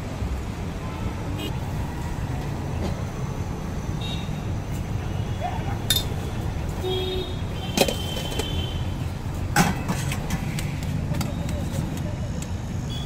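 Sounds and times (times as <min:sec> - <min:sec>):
road traffic rumble: 0:00.0 - 0:13.0
metal pot lids clinking: 0:05.9 - 0:06.2.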